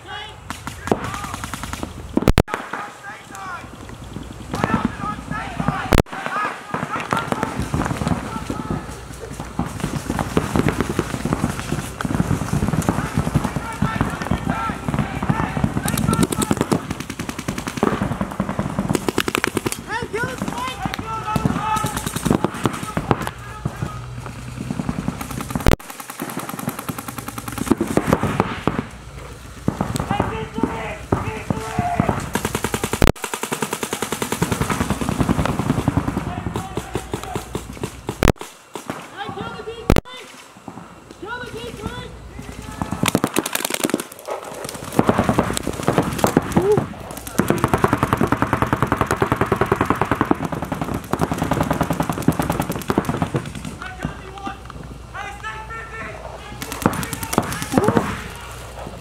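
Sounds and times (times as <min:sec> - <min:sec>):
paintball markers firing rapid shots: 0:00.5 - 0:02.8, 0:09.4 - 0:23.4, 0:24.6 - 0:28.8, 0:29.7 - 0:39.0, 0:42.7 - 0:54.4, 0:56.6 - 0:58.4.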